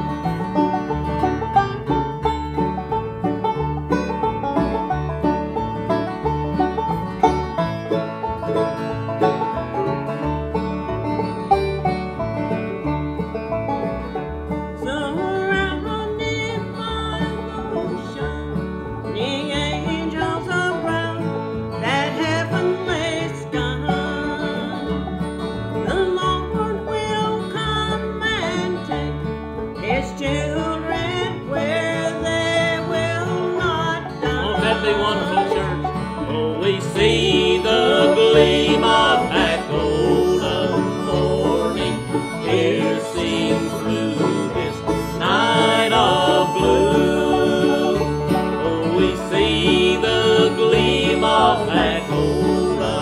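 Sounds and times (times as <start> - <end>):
banjo rolling: 0.0 - 53.0
mandolin: 0.0 - 53.0
plucked upright bass: 0.0 - 53.0
strummed acoustic guitars: 0.0 - 53.0
people singing: 34.1 - 53.0.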